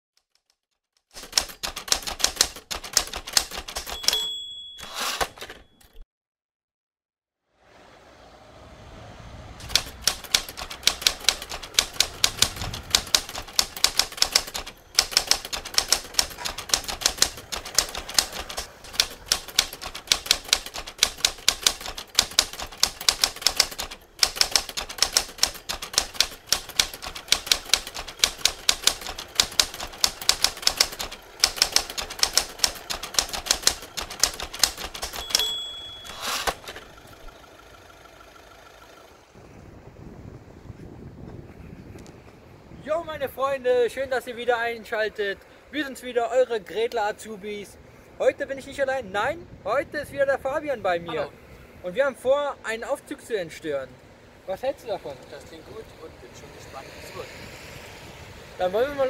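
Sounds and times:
typewriter keys clacking: 0:00.2 - 0:06.0, 0:09.6 - 0:36.7
typewriter carriage return rasp: 0:01.1 - 0:06.0, 0:09.6 - 0:36.9
typewriter bell ring: 0:01.2 - 0:06.0, 0:09.7 - 0:36.8.

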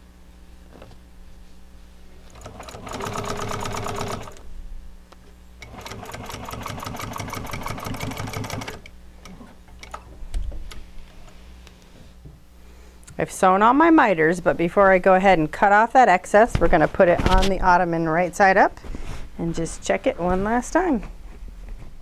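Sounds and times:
sewing machine stitching: 0:02.3 - 0:04.4, 0:05.6 - 0:10.0.

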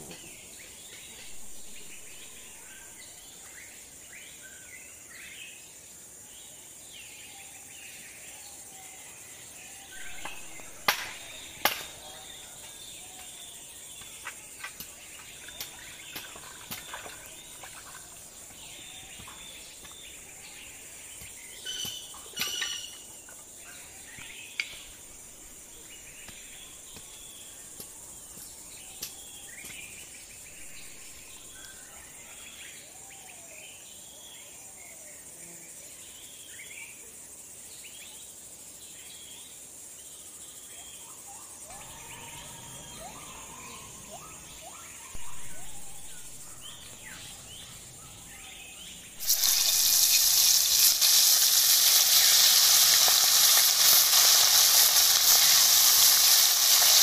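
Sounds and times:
insects droning: 0:00.0 - 0:57.0
bird chirps: 0:09.9 - 0:32.8, 0:40.8 - 0:57.0.

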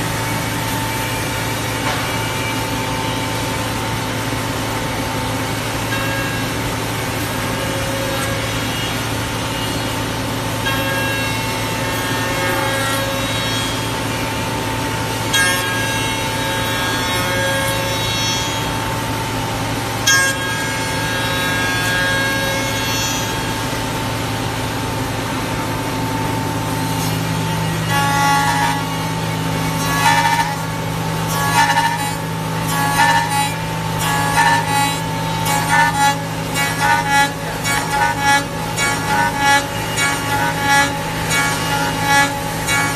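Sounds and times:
machine hum: 0:00.0 - 0:42.9
router cutting wood: 0:25.4 - 0:42.9.

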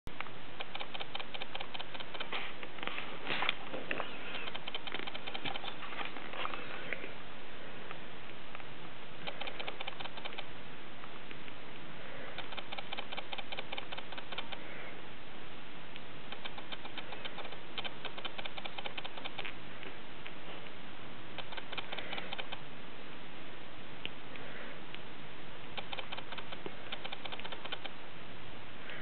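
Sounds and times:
kittens suckling clicks: 0:00.6 - 0:02.4, 0:03.4 - 0:06.9, 0:08.6 - 0:10.5, 0:12.3 - 0:14.7, 0:16.3 - 0:19.6, 0:21.4 - 0:22.6, 0:25.8 - 0:28.0.

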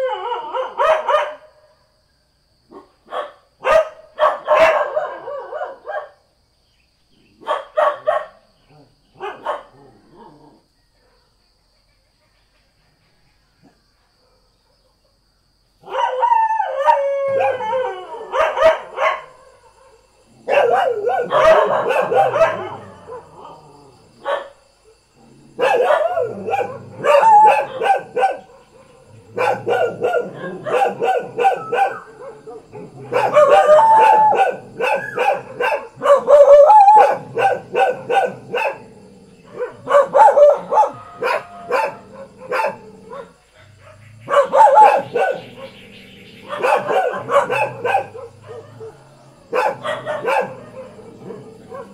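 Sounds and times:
dogs howling: 0:00.0 - 0:01.3, 0:15.9 - 0:24.5, 0:25.2 - 0:51.9
dogs barking and yelping: 0:00.0 - 0:01.6, 0:02.7 - 0:06.2, 0:07.3 - 0:11.2, 0:15.8 - 0:51.9.

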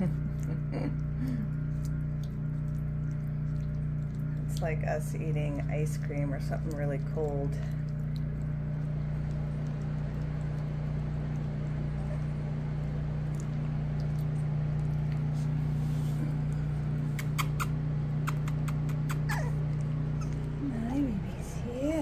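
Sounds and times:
puppies chewing and shuffling: 0:00.0 - 0:22.0
steady low hum: 0:00.0 - 0:22.0
puppy whimper: 0:11.9 - 0:12.5, 0:17.1 - 0:20.8.

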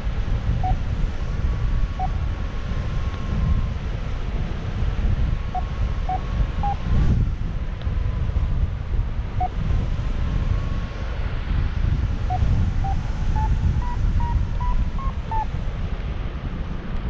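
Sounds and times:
wind rushing over microphone: 0:00.0 - 0:17.0
variometer beeps: 0:00.6 - 0:00.8, 0:12.3 - 0:15.5.

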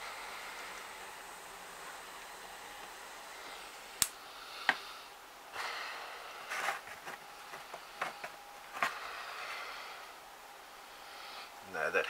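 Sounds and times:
short hissing bursts: 0:00.0 - 0:06.5
faint steady hiss: 0:00.0 - 0:12.0.

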